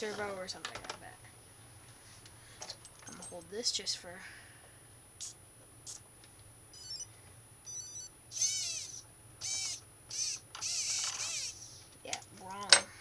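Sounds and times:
motor start-up beeps: 6.8 - 7.1, 7.7 - 11.6
pitch-bending motor tones: 6.8 - 7.1, 7.7 - 11.6.

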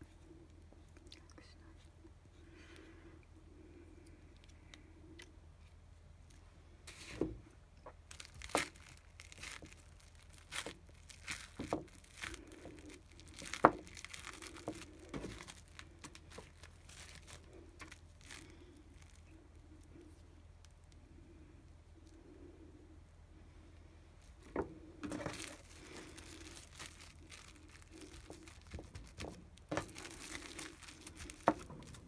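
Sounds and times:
cling film crinkling: 7.8 - 19.9, 25.0 - 32.0.

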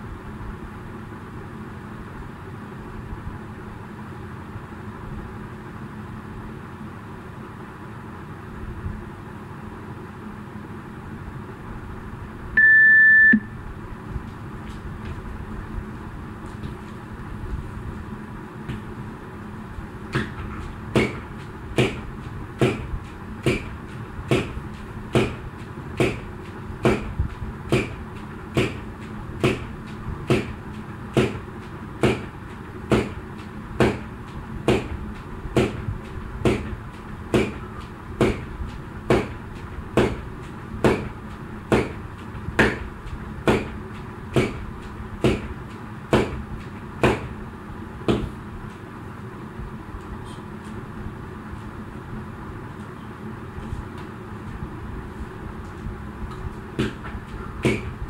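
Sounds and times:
steady background hum: 0.0 - 58.0
jump rope slapping floor: 20.1 - 37.6.

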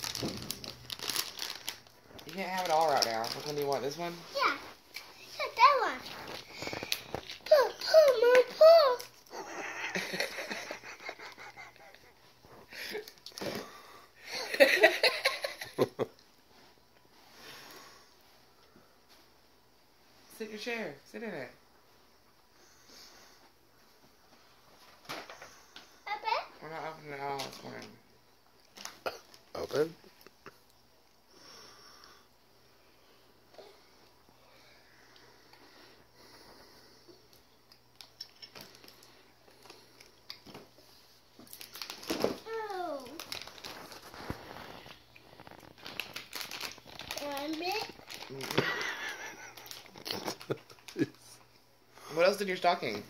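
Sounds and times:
packaged candy and toys rustling: 0.0 - 13.9, 28.6 - 30.0, 37.9 - 51.4
young child giggling: 9.3 - 12.2, 14.3 - 16.1
faint breathing: 22.5 - 23.6, 31.3 - 37.4.

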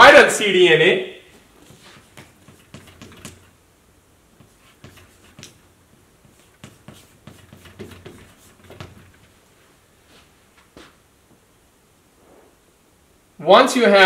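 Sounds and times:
chalk tapping and scratching: 1.6 - 3.6, 4.3 - 9.4.

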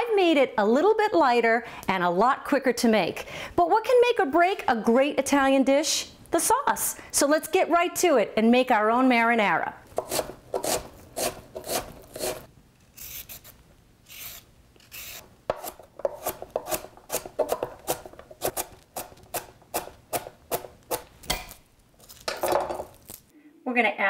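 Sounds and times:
knife chopping on wooden board: 10.0 - 12.4, 15.5 - 21.6.

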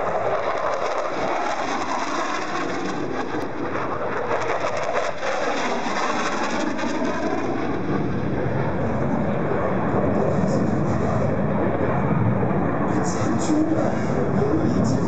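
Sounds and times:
jet flying past overhead: 0.0 - 15.0.

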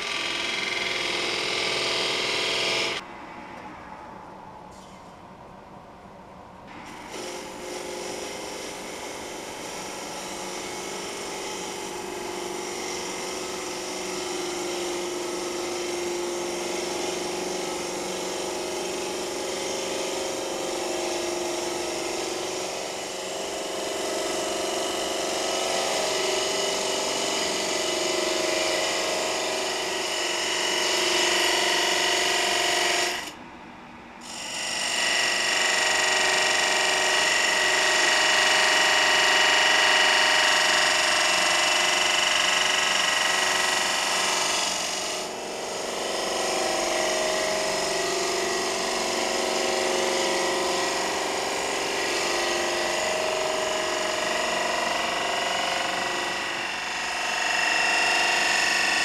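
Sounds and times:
gouge cutting wood: 0.0 - 3.0, 7.0 - 33.3
wood lathe hum: 0.0 - 3.0, 6.9 - 33.4, 34.2 - 59.0.

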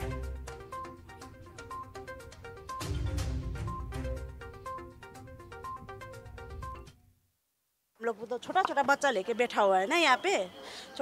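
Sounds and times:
news music repeated notes: 0.0 - 6.9.

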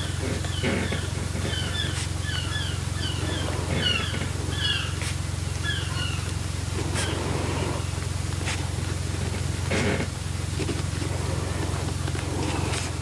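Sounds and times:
birds chirping: 0.0 - 10.1
steady low hum: 0.0 - 13.0.

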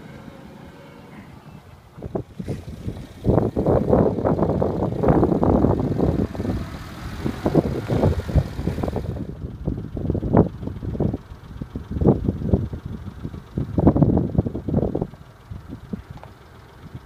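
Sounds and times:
car driving over gravel: 0.0 - 9.4.

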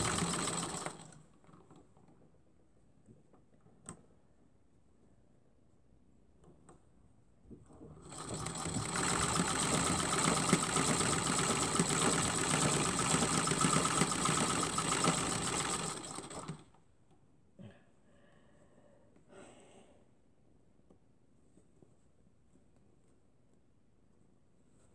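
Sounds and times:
sewing machine stitching: 0.0 - 2.0, 7.8 - 16.8.

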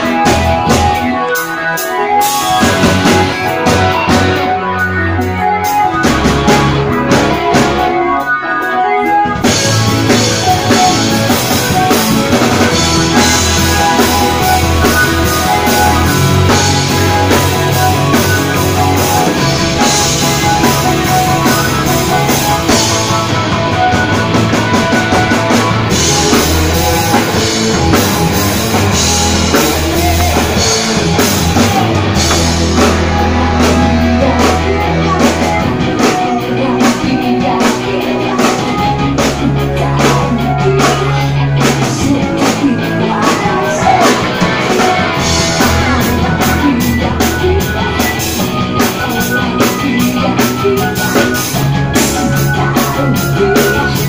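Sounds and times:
rock band playing loud: 0.0 - 54.0
woman singing into microphone: 32.8 - 54.0.

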